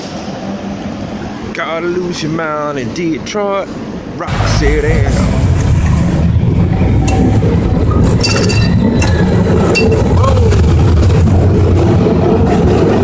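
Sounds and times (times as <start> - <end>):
cable car rumbling on track: 0.0 - 13.0
metallic clinks and rattles: 8.2 - 9.2, 9.8 - 10.1.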